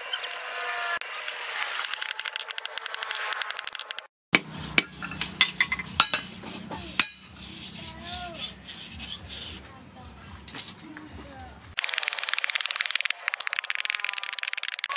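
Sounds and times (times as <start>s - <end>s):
rasping on wood: 4.4s - 9.7s.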